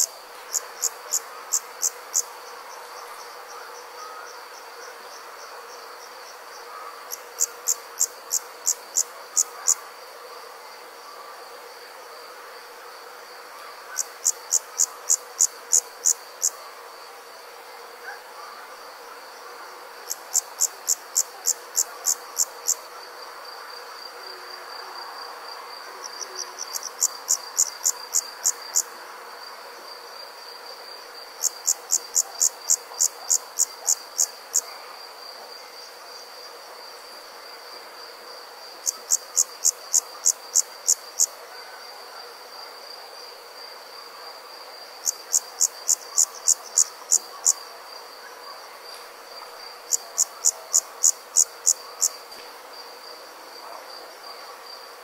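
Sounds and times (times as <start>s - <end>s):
insect chirping in bursts: 0.0s - 4.6s, 5.4s - 10.0s, 13.9s - 16.6s, 44.7s - 48.0s.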